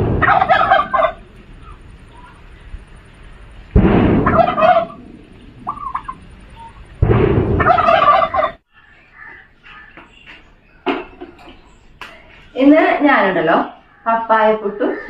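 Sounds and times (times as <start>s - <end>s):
bird calling loudly: 0.0s - 2.5s, 4.2s - 7.0s, 7.6s - 10.8s, 12.6s - 15.0s.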